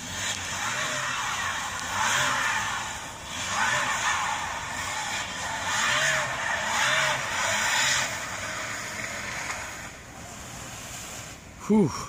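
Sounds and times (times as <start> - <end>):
car engine revving: 0.0 - 11.6
tyres spinning on ice: 0.0 - 12.0.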